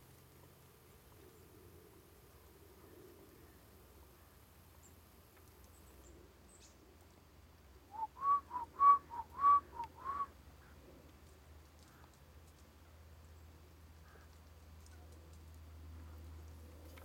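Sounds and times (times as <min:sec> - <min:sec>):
whistled two-note phrase: 0:08.0 - 0:10.3.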